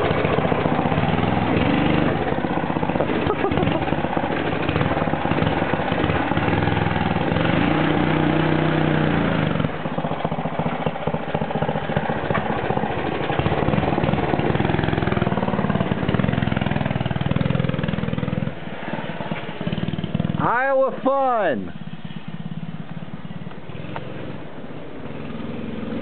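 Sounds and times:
small gas engine revving: 0.0 - 20.5, 21.7 - 26.0.

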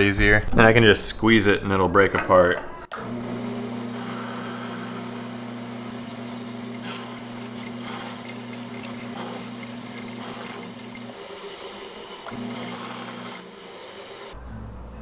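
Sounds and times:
bandsaw motor hum: 2.9 - 14.4
saw blade cutting wood: 3.8 - 14.4.

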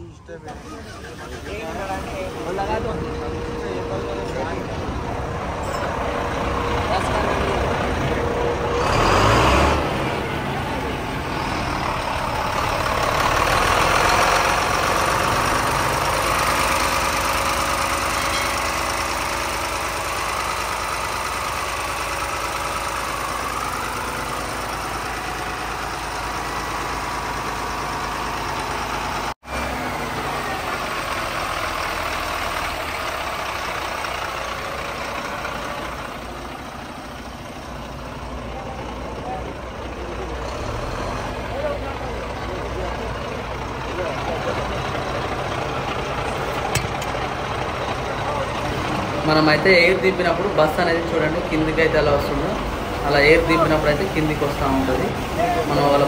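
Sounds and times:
bus diesel engine idling: 0.0 - 56.0.

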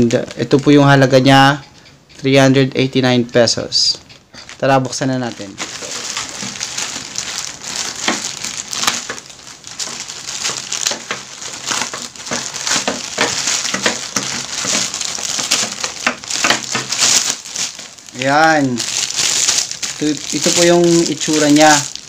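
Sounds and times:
plastic bag crinkling and tearing: 4.4 - 22.0.

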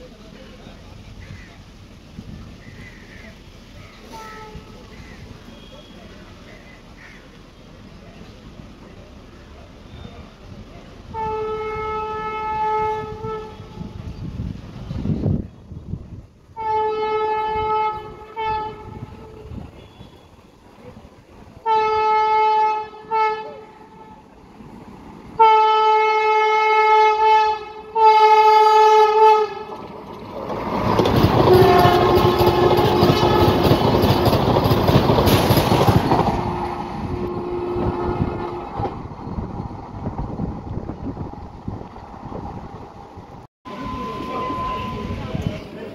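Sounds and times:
train passing with rushing noise: 0.0 - 45.9
train horn blasts: 4.0 - 4.8, 11.1 - 14.1, 16.6 - 20.4, 21.6 - 24.3, 25.4 - 29.8, 31.4 - 34.3, 36.3 - 39.0
train wheel clatter: 29.4 - 43.4.

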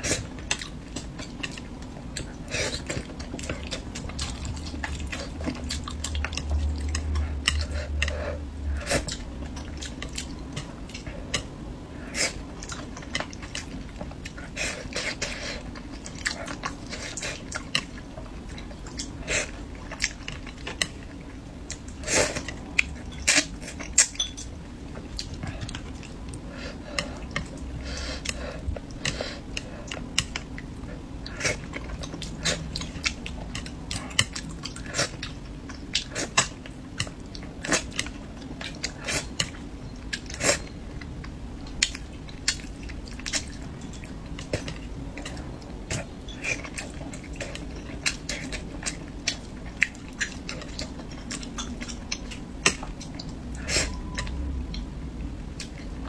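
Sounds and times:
chewing with wet mouth clicks: 0.2 - 56.0.

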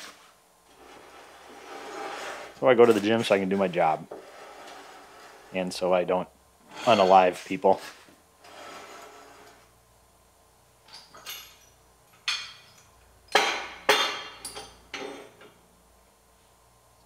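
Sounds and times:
metal scrape: 0.0 - 5.6, 6.6 - 9.7.

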